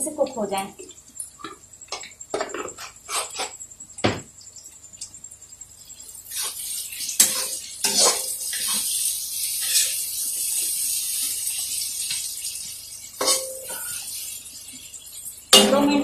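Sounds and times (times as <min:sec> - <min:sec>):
frying hiss: 0:00.0 - 0:16.0
ladle scraping metal pan: 0:07.2 - 0:08.8.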